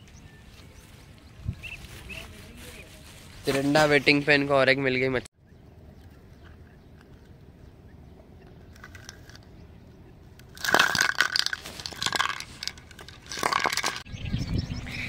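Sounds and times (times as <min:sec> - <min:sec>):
tin can clattering on ground: 0:10.5 - 0:14.1.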